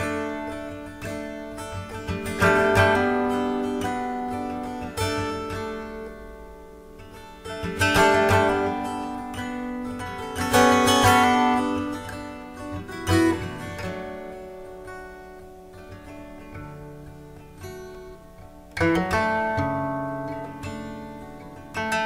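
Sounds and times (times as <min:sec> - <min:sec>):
acoustic guitar chords strummed: 0:00.0 - 0:22.0.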